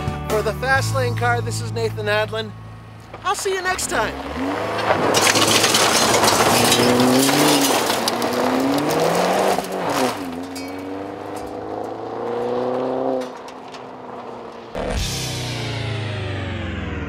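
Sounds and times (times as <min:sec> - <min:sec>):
car engine accelerating: 0:00.4 - 0:17.0
tyres spraying gravel: 0:03.0 - 0:14.8.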